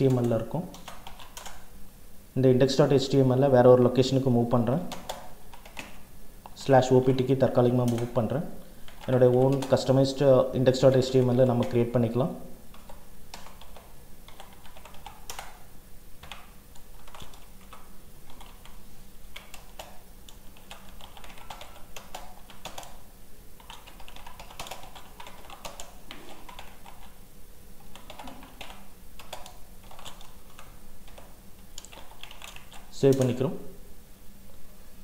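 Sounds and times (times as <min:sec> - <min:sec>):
keyboard typing clicks: 0:00.0 - 0:01.6, 0:04.9 - 0:06.6, 0:07.8 - 0:08.2, 0:08.9 - 0:09.9, 0:12.7 - 0:15.6, 0:16.2 - 0:23.0, 0:23.6 - 0:27.2, 0:27.8 - 0:33.4.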